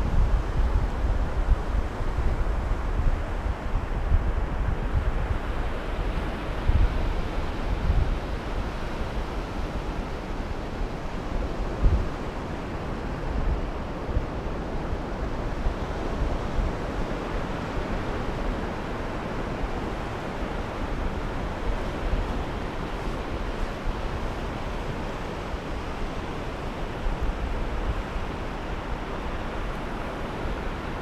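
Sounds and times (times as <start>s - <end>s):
wind buffeting microphone: 0.0s - 10.2s
sea surf washing on shore: 0.9s - 31.0s.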